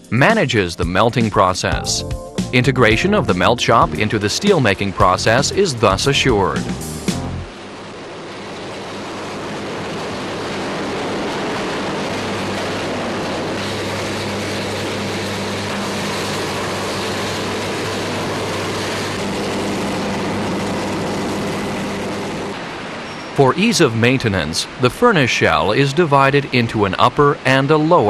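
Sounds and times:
low steady hum: 0.1 - 28.0
electric arc furnace roaring: 3.4 - 23.4.

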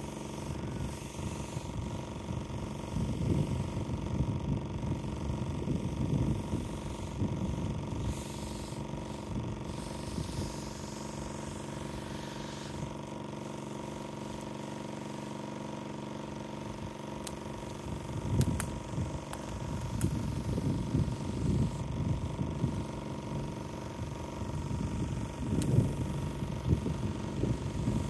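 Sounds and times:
pressure washer humming: 0.0 - 28.0
sharp clicks: 17.2 - 20.2.

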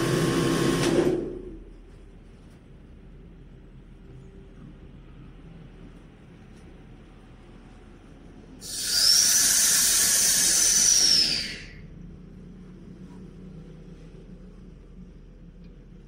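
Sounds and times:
low machine hum: 0.0 - 16.0
air hissing through valve: 8.6 - 11.8
high whistle: 8.6 - 11.8.

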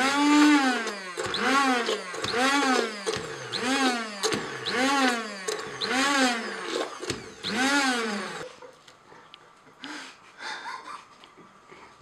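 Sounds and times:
immersion blender motor whine: 0.0 - 8.5.

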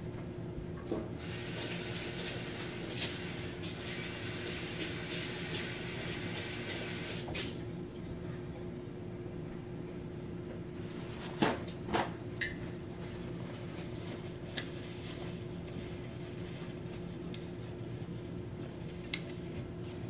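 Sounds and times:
water running with a hiss: 1.2 - 7.6.

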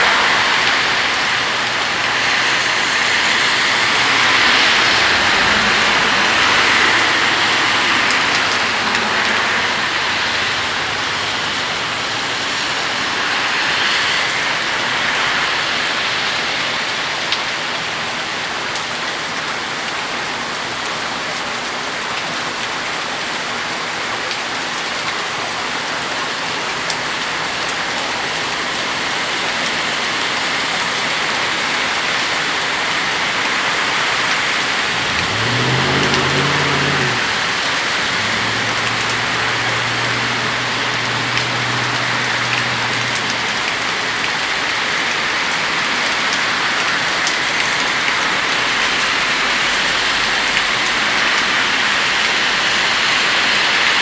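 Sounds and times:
heavy rain: 0.0 - 54.0
low engine hum: 34.2 - 44.2.

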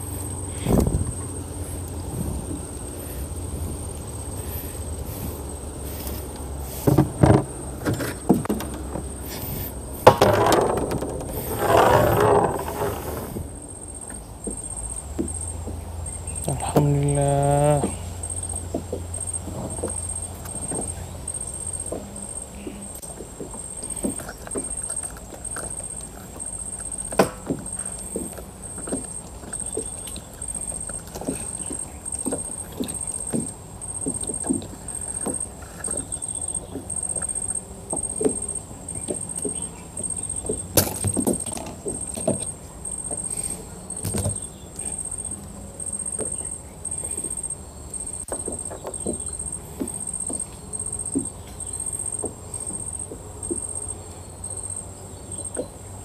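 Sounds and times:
gear rustling in plastic boat: 0.0 - 16.8, 17.8 - 55.5
hollow knocks: 6.7 - 13.5, 48.2 - 53.7.

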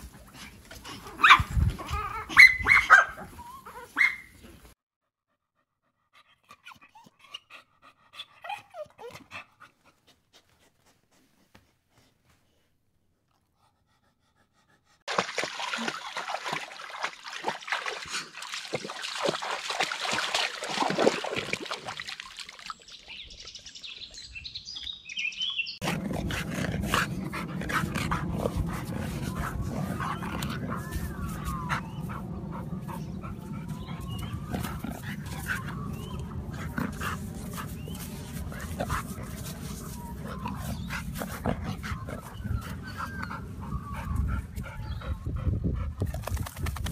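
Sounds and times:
dog rolling in loose dirt: 25.8 - 42.8.

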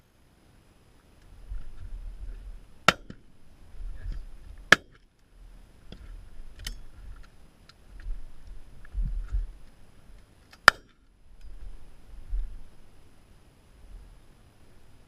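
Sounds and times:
wind rumble on microphone: 1.3 - 2.7, 3.5 - 4.7, 5.4 - 9.7, 11.3 - 12.9
shotgun cracks: 10.6 - 11.0.

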